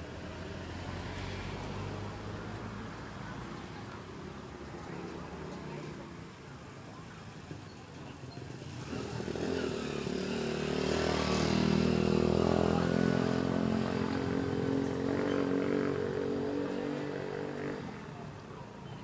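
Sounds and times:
vehicle engine passing: 8.8s - 18.2s.

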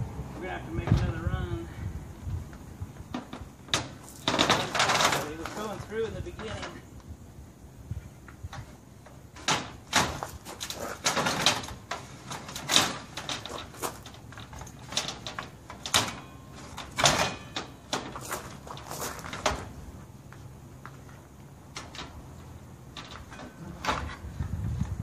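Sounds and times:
saw blade banging and rattling: 3.2s - 6.8s, 9.4s - 19.7s.

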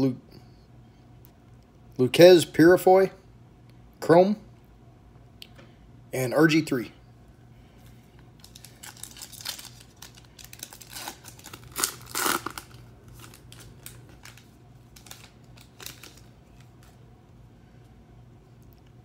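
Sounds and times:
cards rustling: 8.3s - 17.0s
foil wrapper tearing and crinkling: 8.4s - 17.0s.

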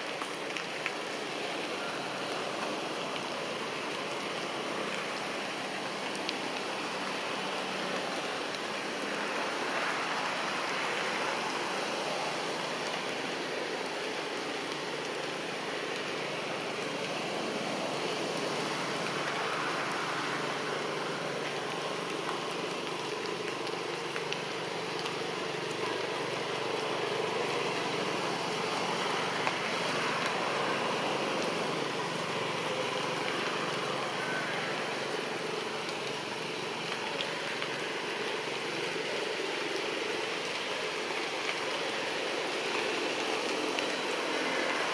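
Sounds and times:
rushing outdoor background noise: 0.0s - 44.9s
small tick: 25.0s - 25.2s.

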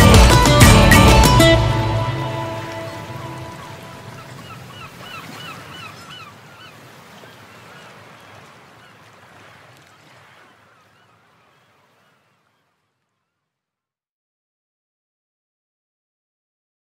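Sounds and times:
background music wash: 0.0s - 4.3s
short chirping music notes: 0.0s - 4.6s.

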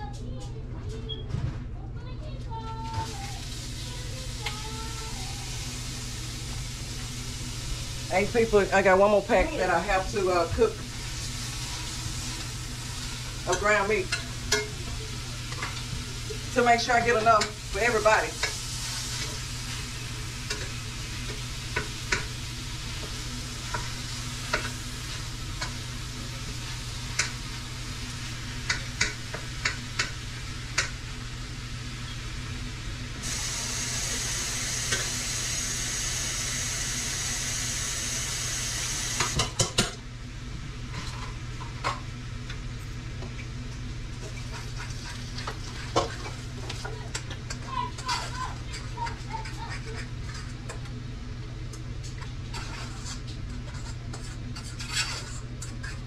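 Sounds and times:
meat sizzling in a skillet: 3.0s - 39.9s
kitchen tap running: 33.2s - 39.9s
spatula scraping a pan: 47.1s - 50.6s, 52.5s - 56.0s.

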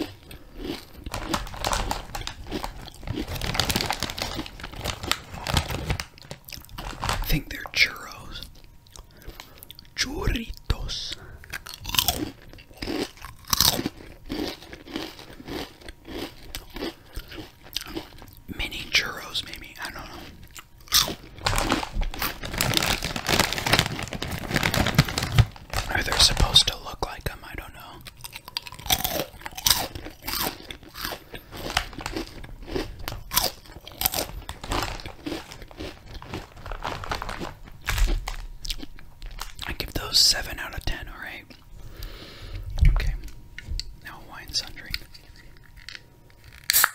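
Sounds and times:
chewing: 11.4s - 18.4s, 28.0s - 39.8s
crunchy bite: 11.5s - 18.4s, 19.9s - 23.5s, 28.0s - 39.7s, 46.5s - 46.9s.

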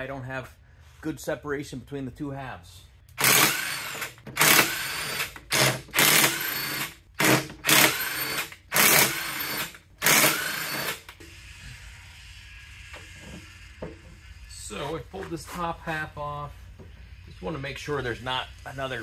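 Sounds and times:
cordless impact wrench: 3.2s - 11.2s.

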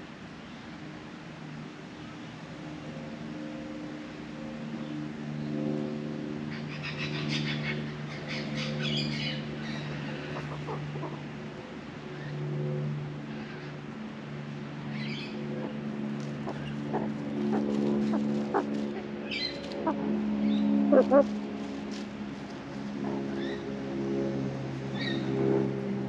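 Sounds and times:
steady low hum: 0.0s - 26.0s
magpie chattering calls: 8.3s - 11.2s, 16.4s - 20.0s.

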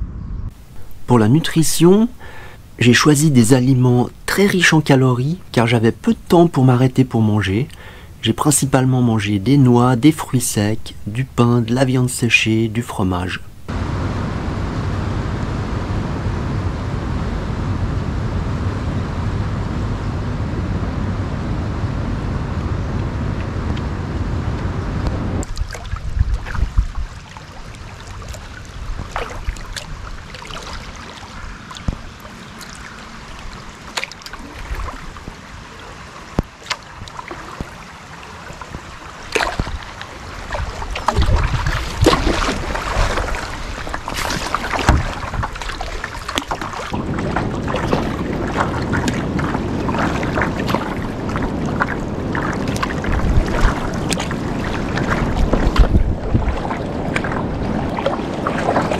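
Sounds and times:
wind rumbling on microphone: 0.0s - 12.2s, 13.3s - 58.9s
paddle splashing in water: 25.4s - 58.9s.

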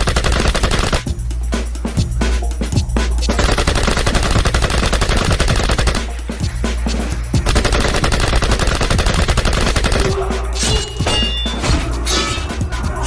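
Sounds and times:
machine-gun automatic fire: 0.0s - 1.1s, 3.4s - 6.1s, 7.4s - 10.2s
low music bed: 1.0s - 4.6s.

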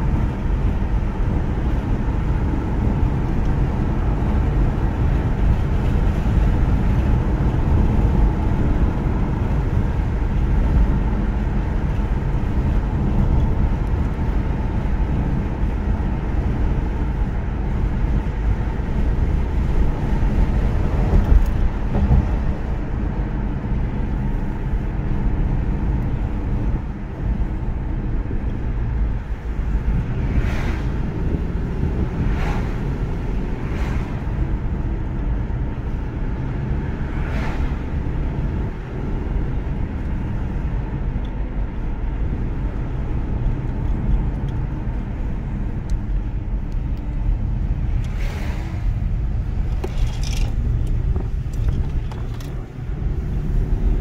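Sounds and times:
car cabin road rumble: 0.0s - 54.0s
brief whooshes: 48.1s - 49.0s.

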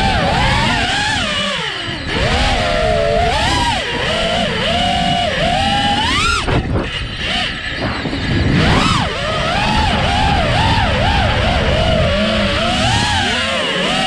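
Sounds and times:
quadcopter motors whining: 0.0s - 14.0s
wind rushing on microphone: 1.9s - 14.0s.

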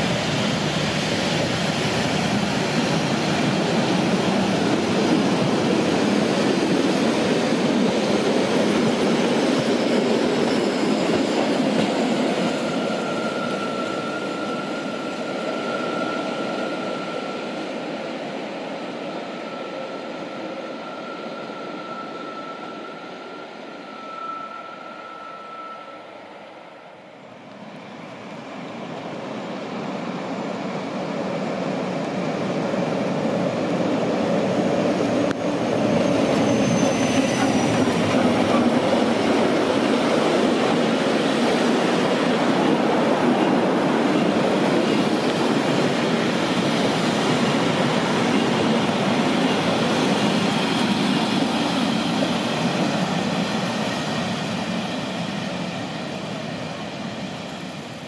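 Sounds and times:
wheel squeal: 12.4s - 17.4s, 23.8s - 26.1s, 35.7s - 38.8s
train coaches rolling on rails: 27.6s - 58.0s
electric locomotive running: 32.1s - 58.0s.

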